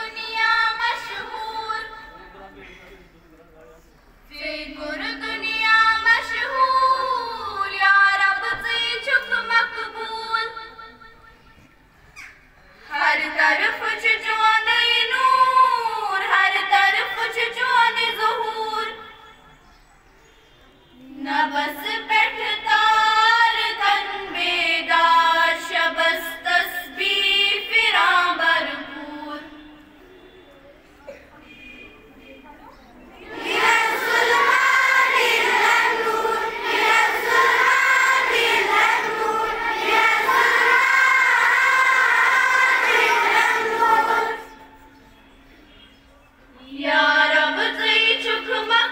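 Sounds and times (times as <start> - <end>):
girls singing in unison: 0.0 - 2.1, 4.3 - 10.8, 12.9 - 19.0, 21.0 - 29.8, 33.1 - 44.8, 46.6 - 48.9.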